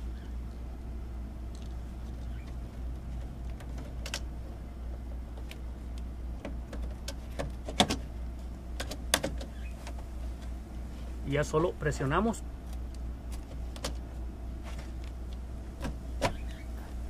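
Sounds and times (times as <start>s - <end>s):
circuit breaker plastic clicks and knocks: 6.4s - 8.0s, 8.8s - 9.5s.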